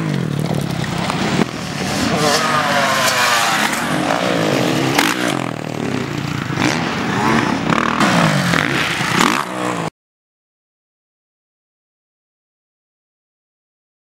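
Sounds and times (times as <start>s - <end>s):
dirt bike engine revving: 0.0s - 9.9s.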